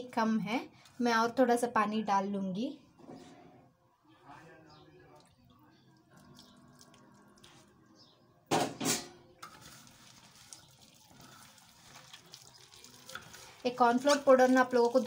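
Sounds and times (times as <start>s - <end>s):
water pouring into bowl: 6.0s - 7.7s, 9.5s - 15.0s
hand kneading wet batter: 9.5s - 15.0s.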